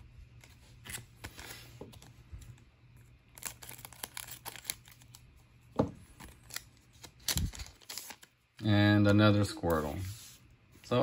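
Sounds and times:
scissors cutting wrapper: 0:03.3 - 0:05.2
paper wrapper crinkling: 0:03.3 - 0:05.3, 0:06.1 - 0:08.4.

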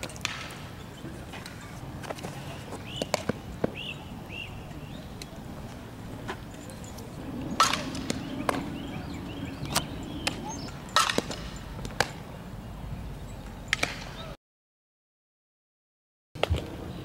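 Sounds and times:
outdoor background noise: 0:00.0 - 0:14.4, 0:16.4 - 0:17.0
softballs hit and caught: 0:01.3 - 0:03.9, 0:07.6 - 0:08.7, 0:11.0 - 0:12.3.

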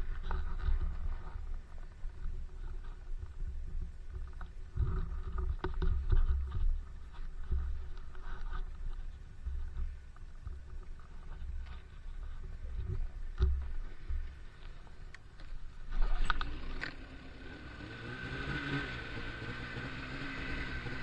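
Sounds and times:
wind rumbling over microphone: 0:00.0 - 0:18.2
snowmobile engine running: 0:13.9 - 0:21.0.

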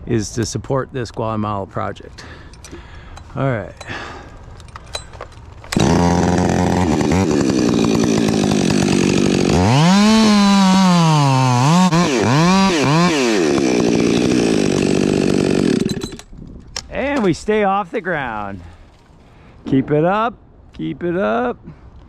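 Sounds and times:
chainsaw idling and revving: 0:05.7 - 0:16.3.

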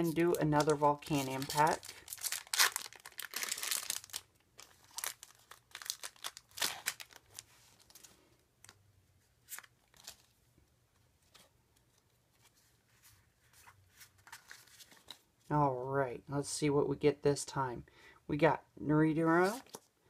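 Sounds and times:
foil pack tearing and crinkling: 0:00.6 - 0:08.0.

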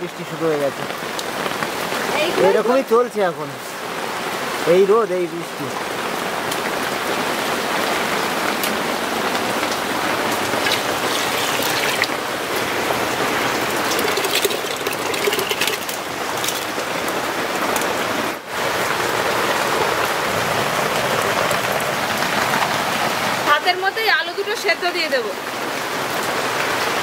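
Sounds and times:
rain falling on leaves: 0:00.0 - 0:27.0
water drips ticking: 0:08.4 - 0:18.0.

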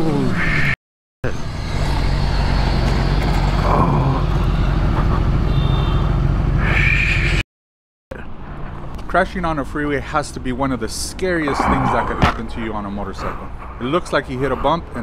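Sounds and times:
wind and road noise: 0:00.0 - 0:07.4, 0:08.1 - 0:15.0
passing freeway traffic: 0:01.3 - 0:07.4, 0:08.1 - 0:15.0.

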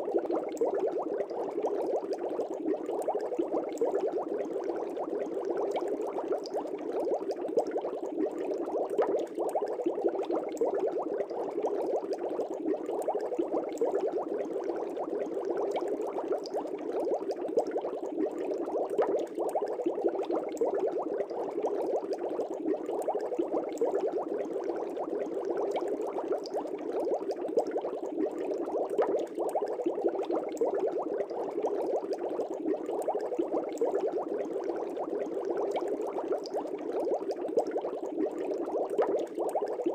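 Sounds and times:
aquarium water bubbling: 0:00.0 - 0:39.9.

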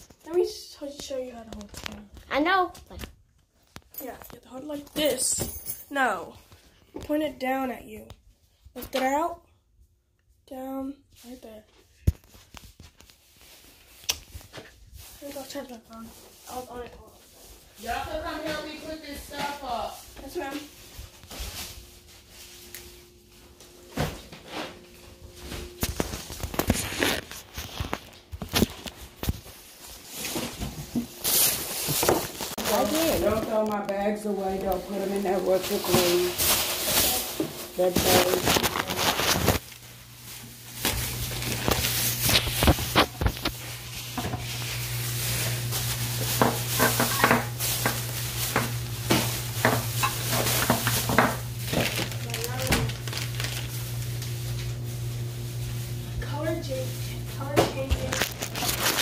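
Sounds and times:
plastic bags rustling: 0:12.2 - 0:59.0.

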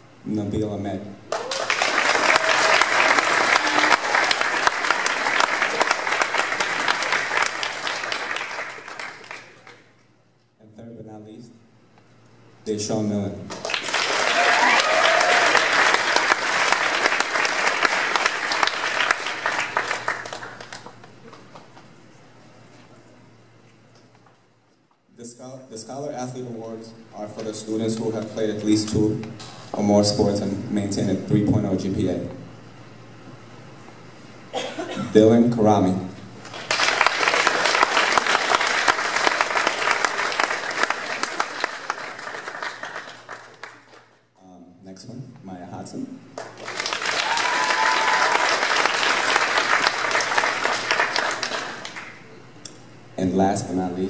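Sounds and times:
audience applauding: 0:01.3 - 0:09.9, 0:13.5 - 0:21.9, 0:36.4 - 0:44.2, 0:46.4 - 0:52.3.

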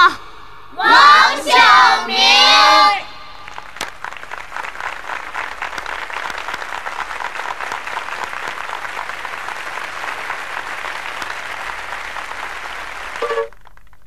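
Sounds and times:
audience applauding: 0:03.4 - 0:14.0.

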